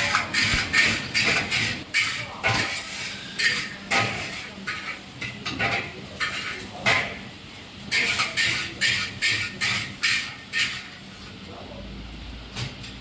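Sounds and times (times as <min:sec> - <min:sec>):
metal ladle clanging on wok: 0:00.0 - 0:07.2
steady sizzle: 0:00.0 - 0:12.4.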